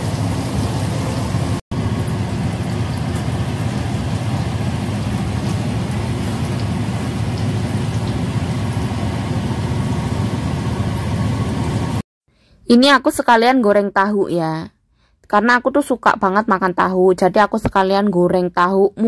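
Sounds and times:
hot oil sizzling in a wok: 0.0 - 12.0.

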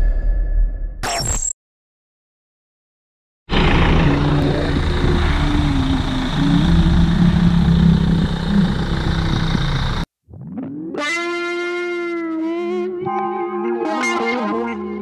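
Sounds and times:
diesel engine running at low revs: 3.5 - 10.1.

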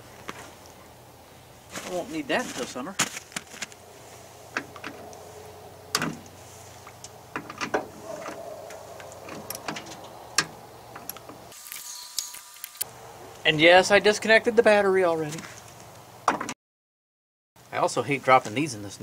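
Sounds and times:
hand tool clicking on metal terminals: 8.7 - 12.9.

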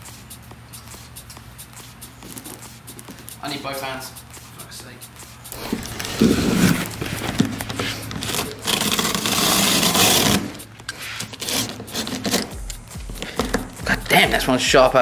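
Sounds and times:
box handling noises: 5.5 - 13.8
knife slitting cardboard: 5.6 - 12.5.

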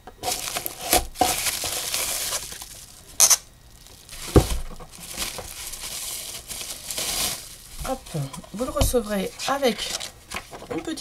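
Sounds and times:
bubble wrap crinkling: 0.0 - 11.0
sharp crackle: 0.2 - 8.0
board thump set down: 4.3 - 4.9.

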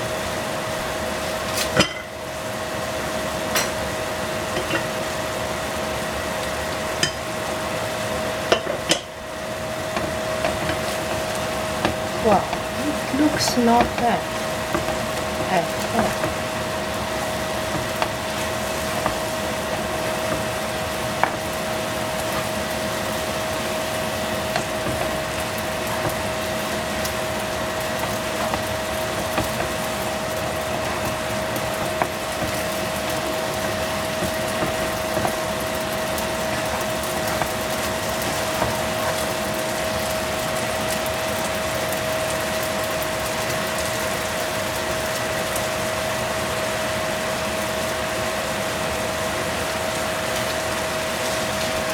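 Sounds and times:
sauce bubbling in frying pan: 0.0 - 51.9
steady tonal hum: 7.0 - 39.1.

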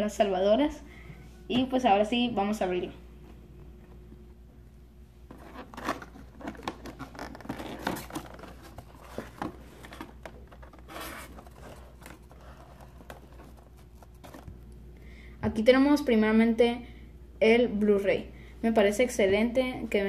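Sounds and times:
cardboard flaps scraping and rustling: 5.3 - 14.5.

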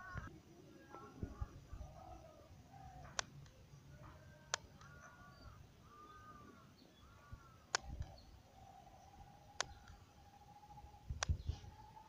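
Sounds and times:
faint steady tone: 0.0 - 12.0
sharp clicks: 3.1 - 3.6, 4.5 - 5.0, 7.7 - 8.2, 9.6 - 10.0, 11.2 - 11.4.

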